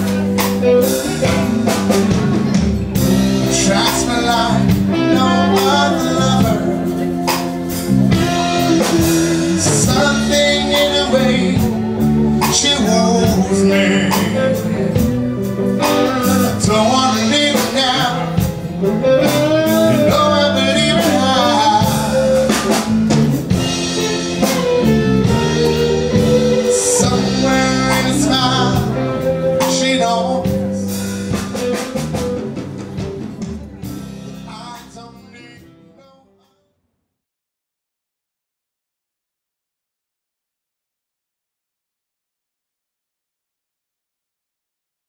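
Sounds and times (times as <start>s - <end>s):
drums: 0.0s - 36.1s
electric guitar: 0.0s - 36.1s
keyboard: 0.0s - 36.4s
man singing into microphone: 2.8s - 22.9s, 26.0s - 31.0s, 34.4s - 36.6s.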